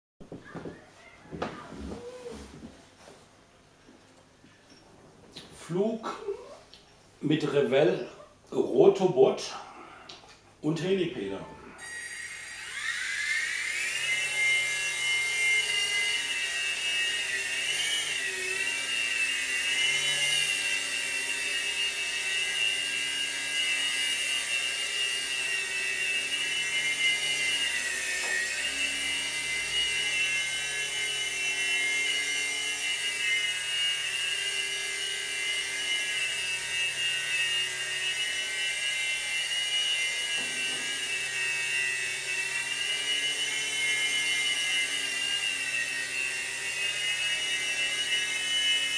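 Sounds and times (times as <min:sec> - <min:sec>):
toy helicopter rotor whine: 0:11.6 - 0:48.9.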